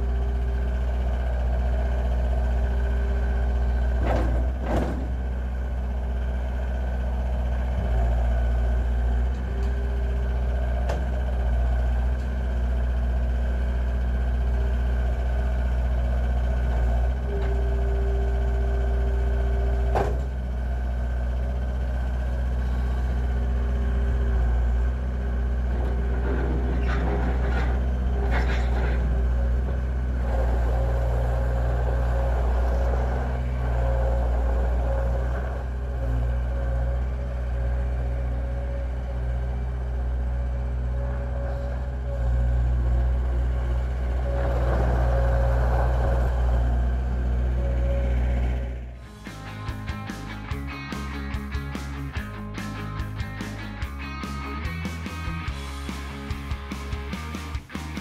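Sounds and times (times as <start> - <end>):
diesel engine running: 0.0 - 58.0
hydraulic whine: 40.9 - 50.1.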